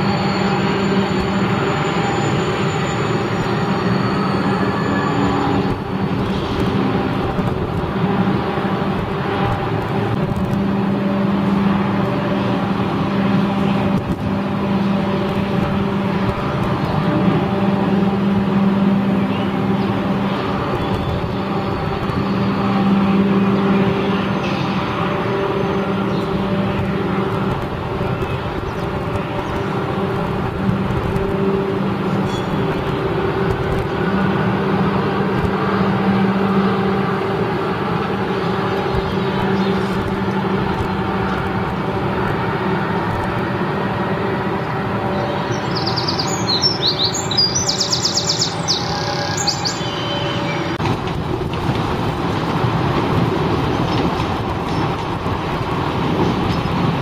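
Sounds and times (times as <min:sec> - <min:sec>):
train passing: 0:00.0 - 0:57.0
trains rumbling: 0:00.0 - 0:57.0
bird chirping: 0:45.1 - 0:50.8.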